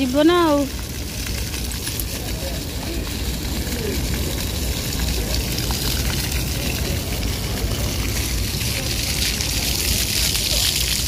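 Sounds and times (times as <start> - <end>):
fountain jets splashing on paving: 0.0 - 11.0.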